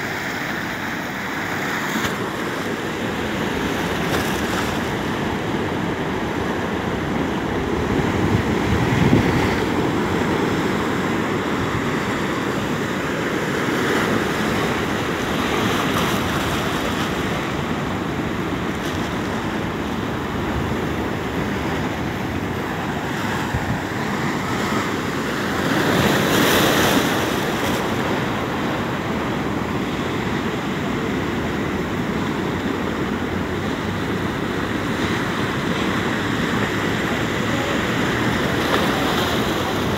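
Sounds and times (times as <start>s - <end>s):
heavy surf roaring: 0.0s - 39.9s
waves crashing on rocks: 0.0s - 39.9s.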